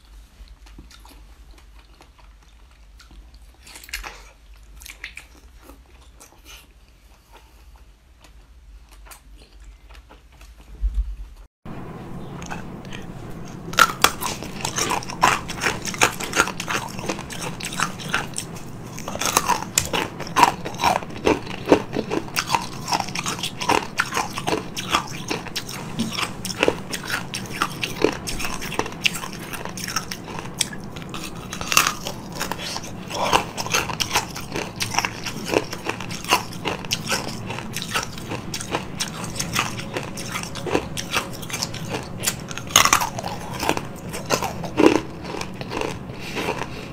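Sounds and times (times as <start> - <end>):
chewing: 0.4 - 10.8, 12.2 - 46.9
crunching ice: 13.8 - 46.9.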